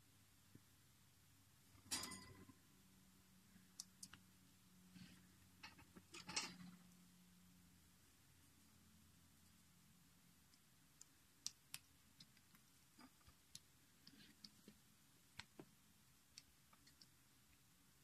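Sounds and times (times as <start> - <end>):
faint small clicks and ticks: 3.5 - 7.1, 10.3 - 18.0.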